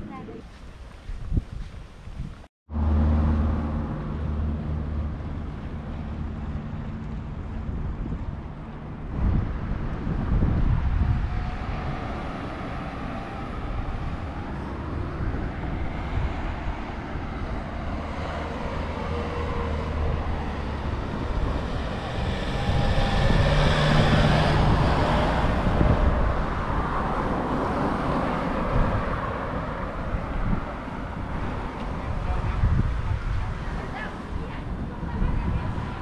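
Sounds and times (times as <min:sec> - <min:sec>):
road traffic rumble: 0:00.0 - 0:36.0
vehicle passing: 0:02.7 - 0:36.0.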